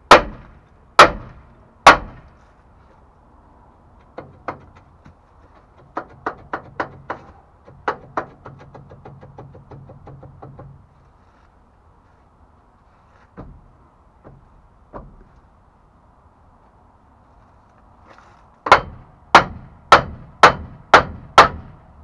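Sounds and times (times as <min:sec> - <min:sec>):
dull thumps of tire and rim: 0:00.0 - 0:02.4, 0:04.0 - 0:10.9, 0:13.2 - 0:15.5, 0:18.1 - 0:21.8.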